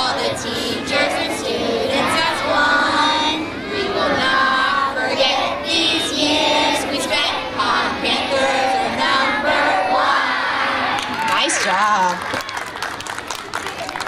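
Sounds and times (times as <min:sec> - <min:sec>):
children singing together: 0:00.0 - 0:11.1.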